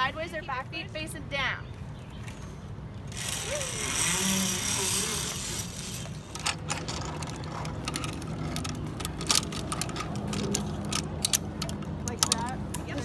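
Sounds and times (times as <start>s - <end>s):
metal carabiners clicking: 3.1s - 13.0s.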